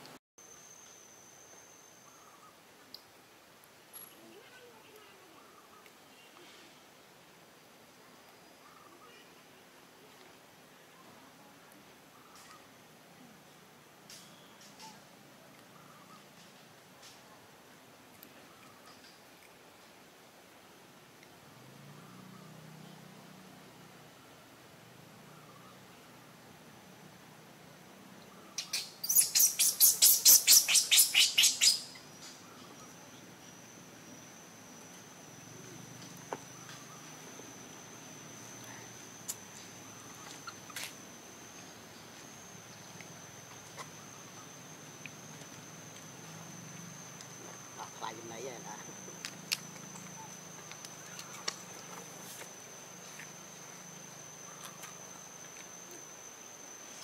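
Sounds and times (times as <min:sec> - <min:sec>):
high-pitched insect trill: 0:00.4 - 0:02.6, 0:28.4 - 0:57.0
faint high-pitched tone: 0:00.4 - 0:02.7
high chirping calls: 0:28.4 - 0:33.6.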